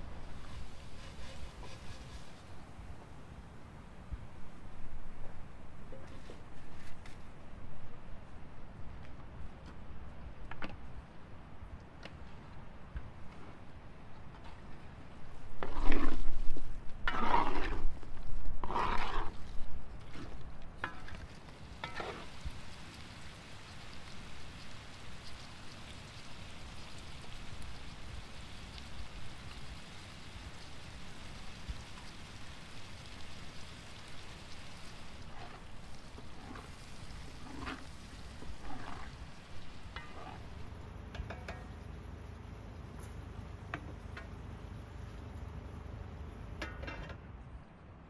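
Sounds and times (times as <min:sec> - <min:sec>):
food sizzling: 0:00.0 - 0:02.9, 0:15.3 - 0:46.7
wooden spoon scraping a pan: 0:00.3 - 0:02.7, 0:05.9 - 0:07.2, 0:15.5 - 0:22.4, 0:34.9 - 0:41.7.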